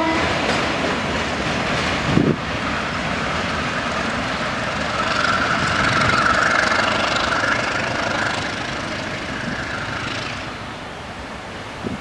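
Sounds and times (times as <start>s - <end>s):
freight train rumbling on track: 0.0s - 12.0s.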